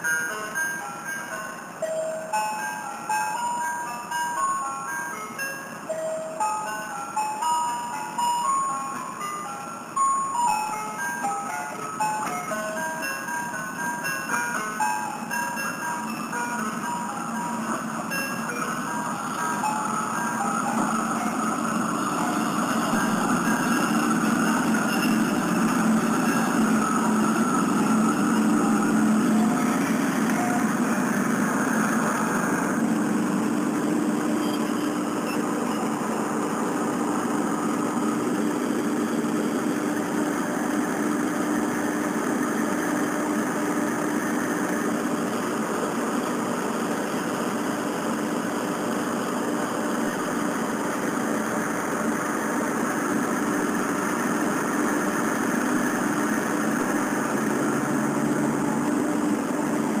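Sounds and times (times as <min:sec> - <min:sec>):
diesel railcar engine idling: 0:00.2 - 1:00.0.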